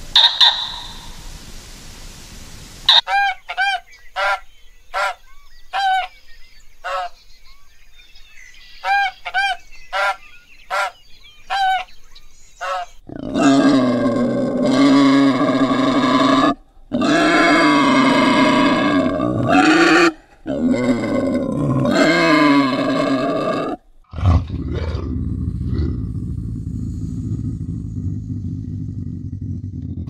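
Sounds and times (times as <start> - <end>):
large bird honking: 0.0 - 1.2, 2.9 - 5.2, 6.8 - 7.2, 8.8 - 11.9
animal rough low drawn-out call: 12.6 - 30.0.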